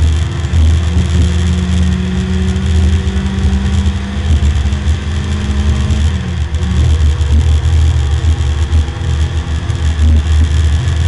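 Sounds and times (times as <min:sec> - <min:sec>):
car engine under load: 0:00.0 - 0:11.0.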